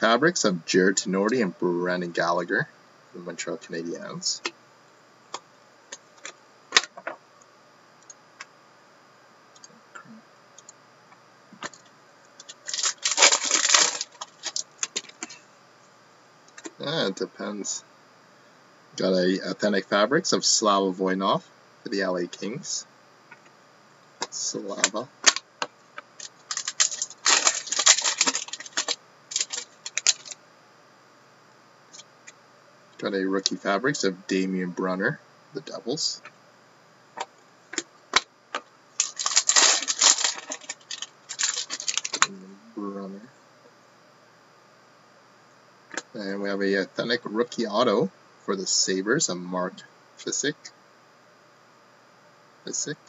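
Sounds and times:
foil wrapper tearing and crinkling: 0:12.6 - 0:15.2, 0:26.2 - 0:30.4, 0:39.0 - 0:42.3.

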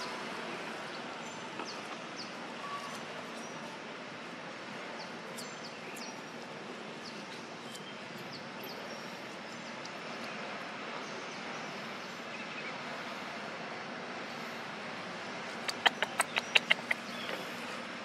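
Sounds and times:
outdoor ambient hiss: 0:00.0 - 0:18.0
short high bird chirps: 0:15.7 - 0:17.4.

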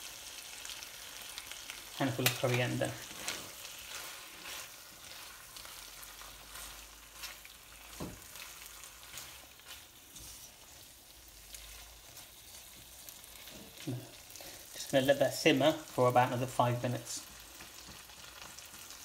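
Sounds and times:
curry sizzling in a wok: 0:00.0 - 0:19.0
spatula stirring and scraping: 0:00.7 - 0:15.3.

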